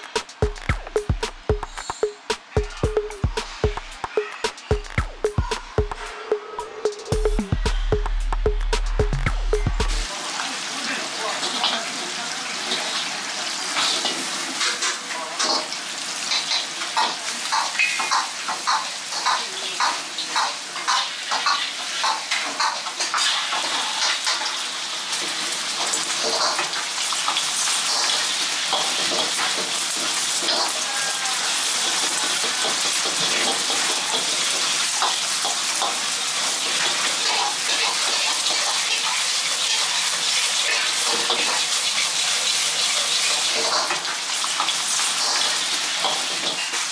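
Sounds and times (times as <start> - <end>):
egg sizzling in hot oil: 15.8 - 46.9.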